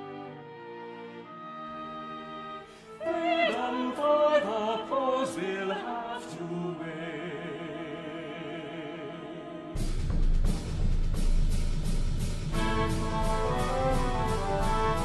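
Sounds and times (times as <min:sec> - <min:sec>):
orchestral chords: 0:00.0 - 0:09.8, 0:12.5 - 0:15.0
operatic voice singing with vibrato: 0:02.8 - 0:09.8
loud low percussion: 0:09.8 - 0:15.0.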